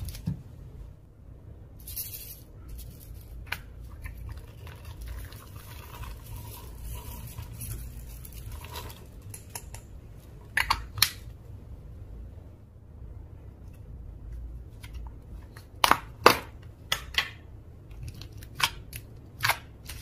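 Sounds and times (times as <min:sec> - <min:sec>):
slime squishing: 0:03.2 - 0:09.4.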